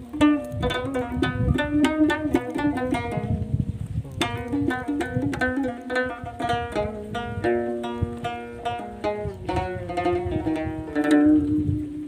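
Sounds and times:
plucked lute notes: 0:00.0 - 0:12.0.

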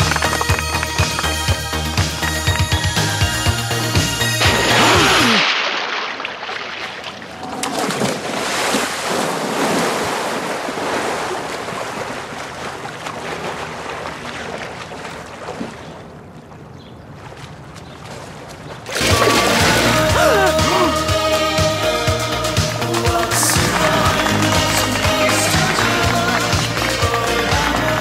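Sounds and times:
music: 0:00.0 - 0:05.2, 0:19.0 - 0:28.0
water splashing: 0:04.0 - 0:28.0.

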